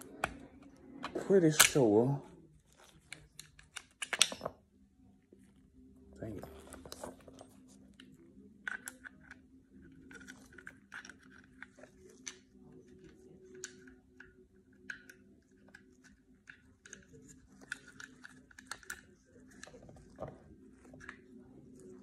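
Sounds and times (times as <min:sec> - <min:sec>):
small metal clicks and scratches: 0:06.5 - 0:22.0.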